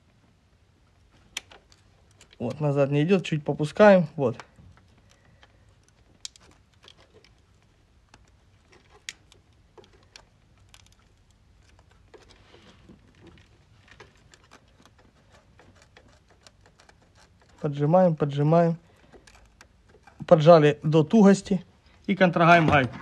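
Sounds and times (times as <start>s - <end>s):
small metallic clicks and taps: 4.4s - 12.4s.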